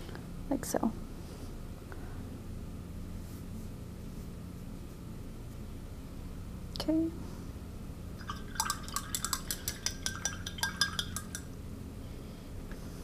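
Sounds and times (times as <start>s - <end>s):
paintbrush clinking in glass jar: 8.2s - 11.6s.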